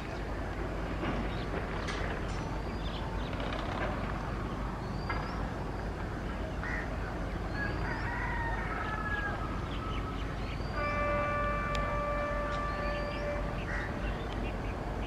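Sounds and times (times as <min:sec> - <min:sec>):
distant diesel locomotive rumble: 0:00.0 - 0:15.0
rooster crowing: 0:07.6 - 0:10.1.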